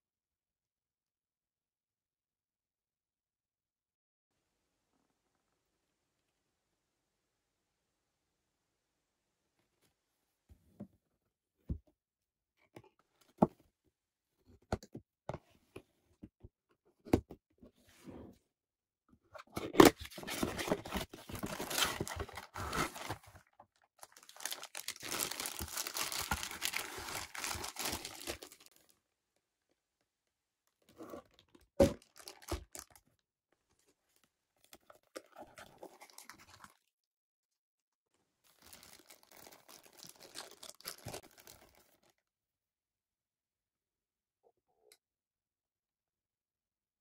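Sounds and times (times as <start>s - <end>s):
plastic bags crinkling: 24.0s - 28.8s, 32.0s - 33.0s, 38.5s - 42.0s.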